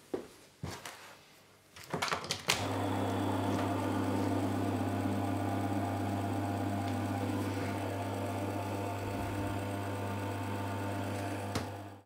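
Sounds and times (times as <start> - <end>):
electric motor running with mains hum: 2.6 - 12.0.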